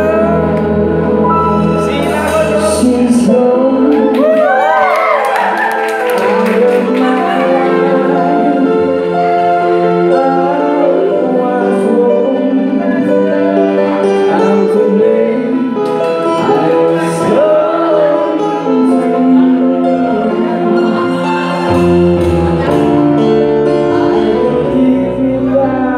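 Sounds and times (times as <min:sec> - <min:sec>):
man singing into microphone: 0:00.0 - 0:05.1, 0:06.0 - 0:21.9, 0:22.6 - 0:25.9
keyboard chords: 0:00.0 - 0:25.9
electric guitar chords: 0:06.1 - 0:25.9.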